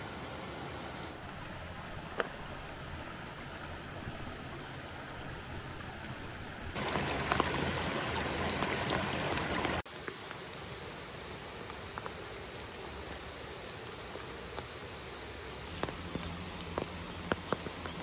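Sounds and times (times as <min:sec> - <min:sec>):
river water rushing: 0:00.0 - 0:09.9
small water splashes: 0:01.2 - 0:09.9.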